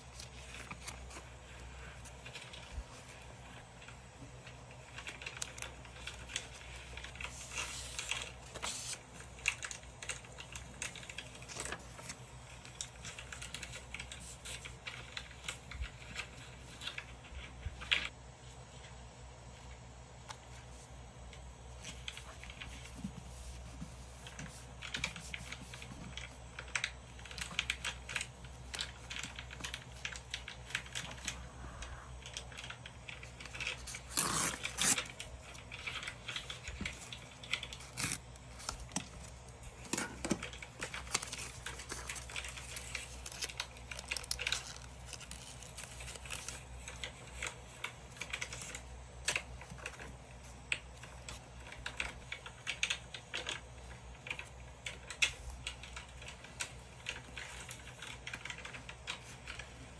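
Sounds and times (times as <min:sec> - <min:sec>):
paper rustling and crinkling: 0:00.0 - 0:03.6, 0:04.6 - 0:18.1, 0:32.3 - 0:53.5
faint low hum: 0:00.0 - 0:59.9.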